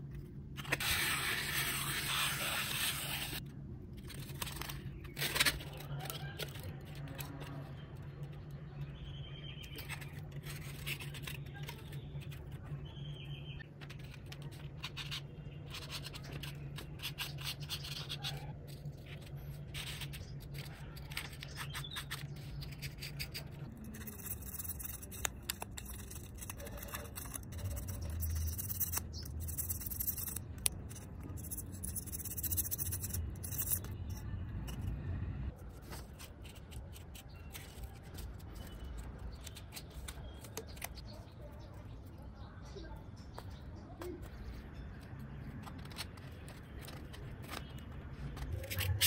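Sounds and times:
pencil scratching on foam: 0.8 - 3.4.

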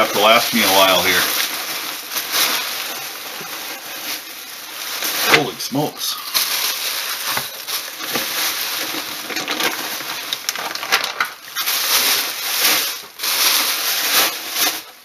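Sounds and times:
bubble wrap crinkling: 0.0 - 15.0.

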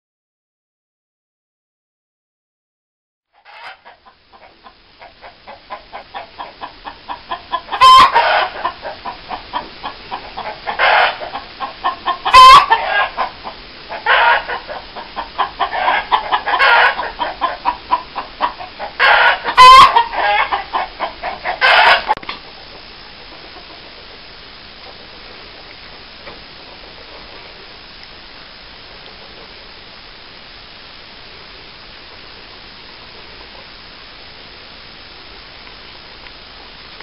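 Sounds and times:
hen squawks: 3.4 - 22.2
chickens clucking: 3.4 - 27.5.

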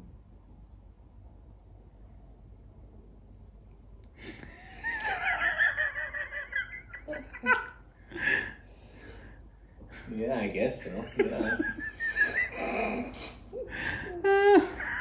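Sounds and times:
man giggling through tv speakers: 10.8 - 15.0
breathy bursts of laughter: 10.9 - 15.0.

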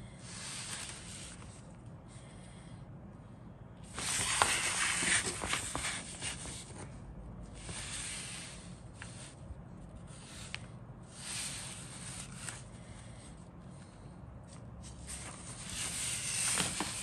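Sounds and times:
paper rustling and crinkling: 3.9 - 6.9, 14.9 - 17.0.

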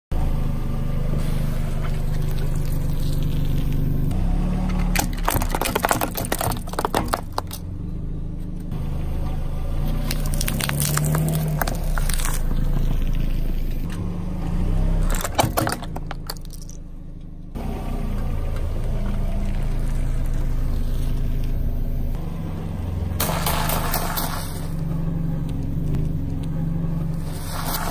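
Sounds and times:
car engine running: 0.1 - 27.9
tyre crushing small objects: 2.1 - 3.9, 4.7 - 7.6, 10.0 - 12.6, 15.0 - 16.8.

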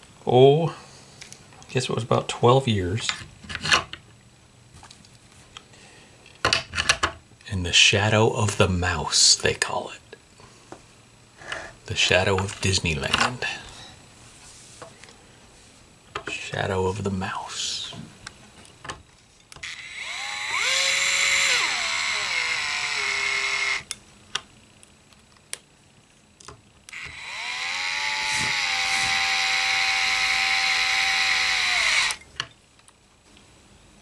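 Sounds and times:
electric screwdriver whining: 19.6 - 23.9, 26.9 - 32.2.

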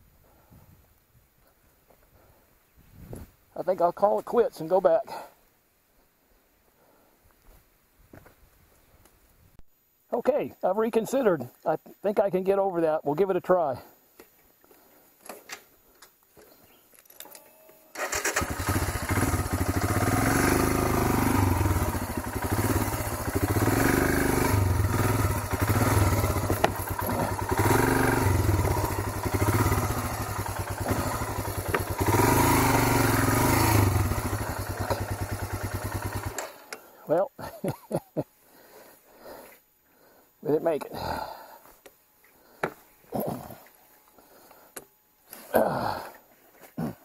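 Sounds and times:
motorcycle engine revving: 18.0 - 36.7.

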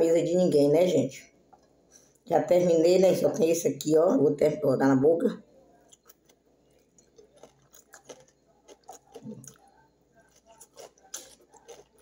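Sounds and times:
person chewing food: 5.6 - 12.0.

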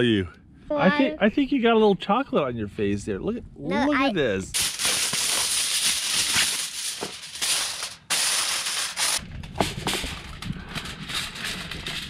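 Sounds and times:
aluminium foil crinkling: 4.5 - 12.0
wood fire crackling and popping: 4.5 - 12.0.

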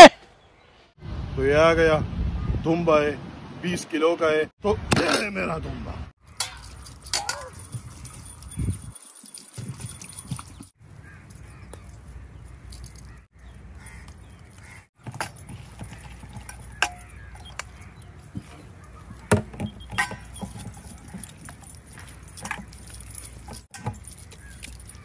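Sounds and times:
metal bracelets and dishes clinking: 6.2 - 25.0.

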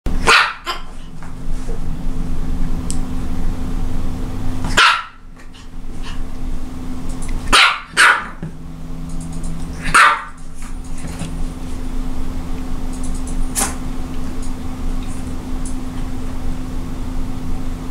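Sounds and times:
small dog barking: 0.2 - 1.0, 4.7 - 5.3, 7.5 - 8.4, 9.8 - 10.4.

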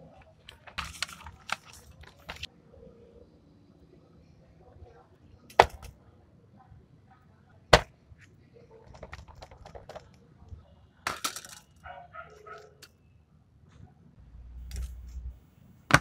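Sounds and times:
plastic parts clacking on a desk: 5.5 - 5.9, 8.8 - 10.3, 11.1 - 11.8.

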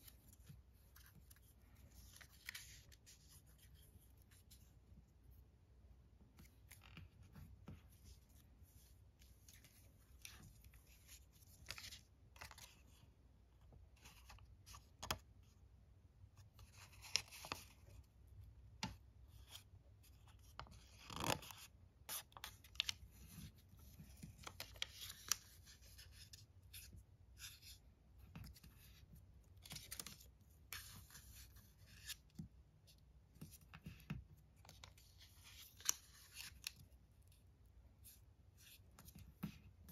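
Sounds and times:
paper folding and creasing: 0.0 - 4.8, 6.3 - 13.0, 16.4 - 18.0, 19.3 - 32.5, 33.4 - 37.4.

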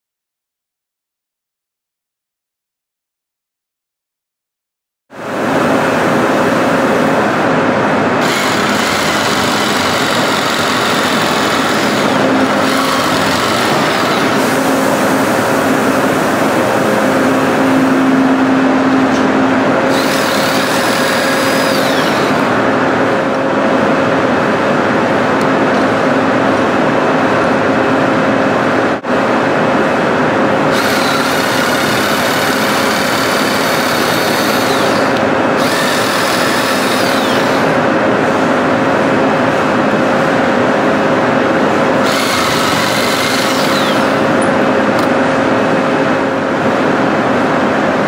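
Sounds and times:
steady machine hum: 5.1 - 48.0
jigsaw cutting with whine: 8.2 - 14.8, 19.9 - 22.6, 30.7 - 37.9, 42.0 - 44.4.

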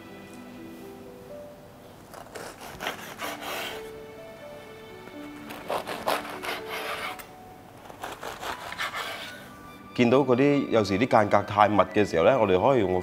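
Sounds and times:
knife sawing crisp fried dough: 2.2 - 3.9, 5.5 - 7.2, 7.9 - 9.4.

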